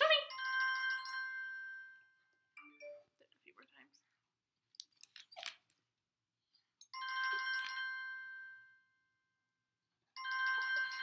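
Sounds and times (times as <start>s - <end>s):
phone chime alert tone: 7.0s - 8.8s.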